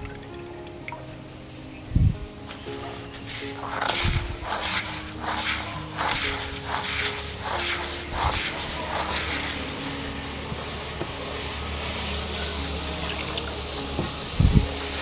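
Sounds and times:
water running into basin: 0.0 - 1.3, 12.9 - 14.8
hand scrubbing rice grains: 2.6 - 15.0.

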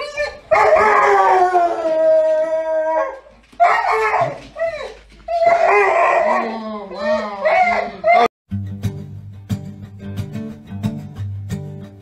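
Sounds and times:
dog howling: 0.5 - 8.3.

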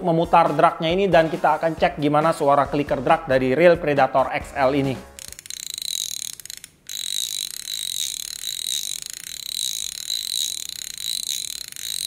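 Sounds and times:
fishing reel drag clicking: 5.1 - 12.0.

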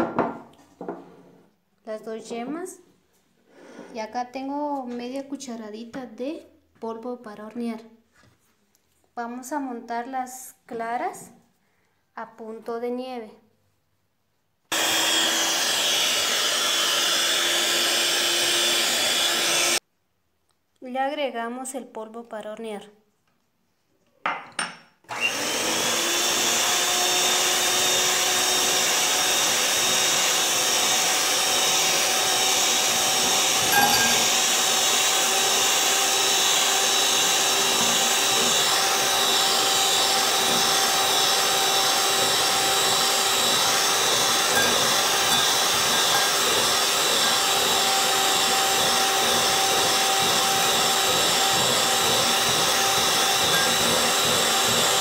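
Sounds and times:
knock: 0.0 - 1.0
electric hand mixer whine: 14.7 - 19.8, 25.1 - 55.0.

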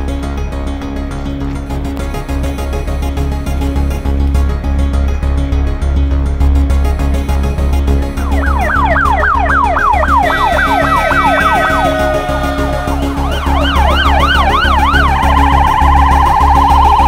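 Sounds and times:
background music with low beat: 0.0 - 17.0
emergency sirens: 8.0 - 17.0.

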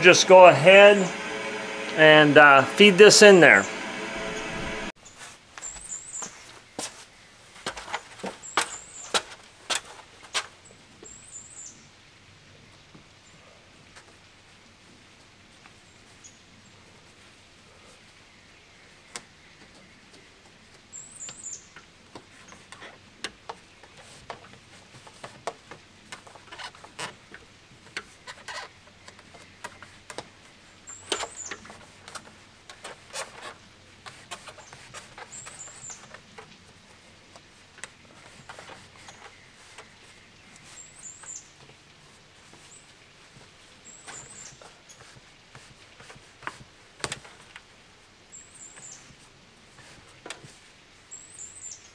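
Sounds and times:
plastic pipe crackling and scraping: 22.2 - 30.3, 31.0 - 47.7
bird chirping: 34.6 - 36.2, 38.3 - 41.6.

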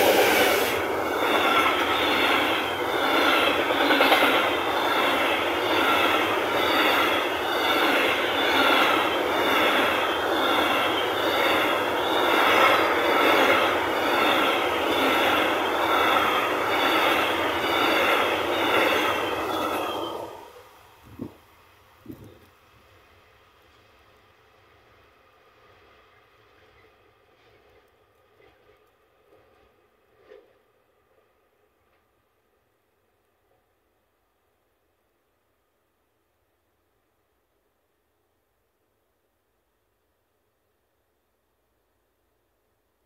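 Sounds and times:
high squeal: 0.0 - 3.9, 4.6 - 20.6
train wheels rushing on rails: 0.0 - 32.5.

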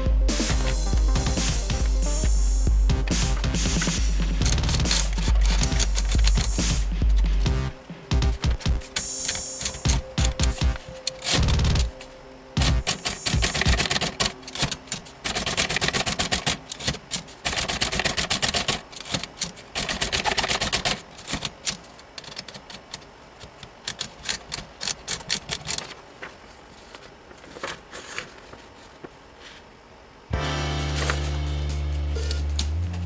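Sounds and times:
manual typewriter key strikes: 4.4 - 7.3, 8.2 - 12.0, 12.6 - 26.0.

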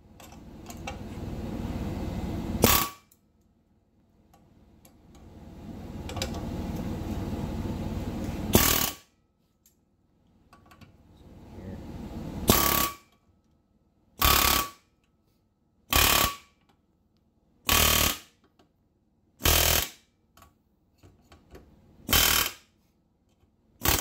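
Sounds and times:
pneumatic air hammer bursts: 2.6 - 3.0, 8.5 - 9.1, 12.5 - 13.1, 14.2 - 14.8, 15.9 - 16.5, 17.7 - 18.4, 19.4 - 20.1, 22.1 - 22.7, 23.8 - 24.0.

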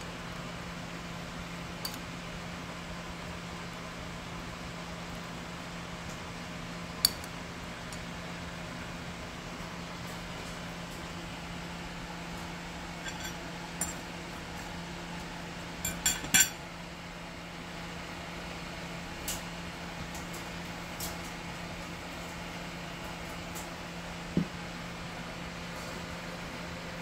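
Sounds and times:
crockery and utensils clinking: 13.0 - 14.0, 15.8 - 16.6.

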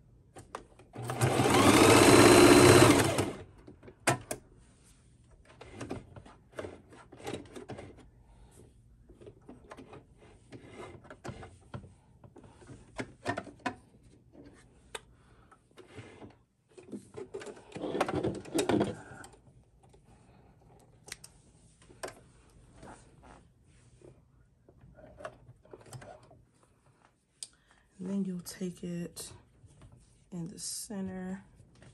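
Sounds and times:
sewing machine stitching: 1.0 - 3.5.

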